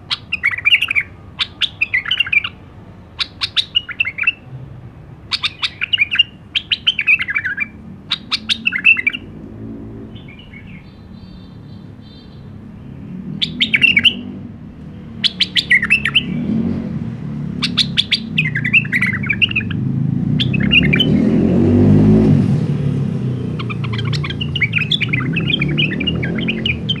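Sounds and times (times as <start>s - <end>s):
bulbul warbling song: 0.0s - 4.5s, 5.3s - 9.4s, 13.3s - 14.3s, 15.2s - 16.5s, 17.6s - 21.8s, 23.1s - 27.0s.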